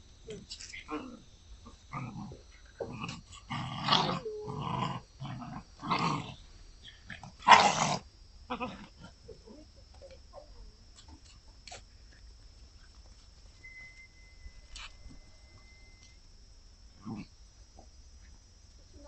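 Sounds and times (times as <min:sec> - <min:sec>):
puppies growling: 0:00.8 - 0:09.7.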